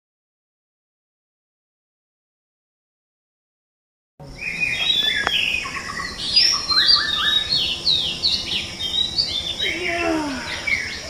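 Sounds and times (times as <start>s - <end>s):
birds chirping and singing: 4.2s - 11.0s
steady high hiss: 4.2s - 11.0s.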